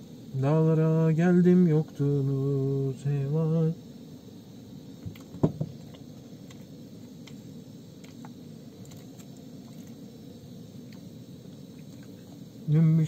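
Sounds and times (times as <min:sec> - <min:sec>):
gas stove burner running: 0:00.0 - 0:13.0
short knock: 0:05.0 - 0:05.8
faint ticks: 0:05.0 - 0:07.4, 0:08.0 - 0:10.0, 0:10.8 - 0:11.1.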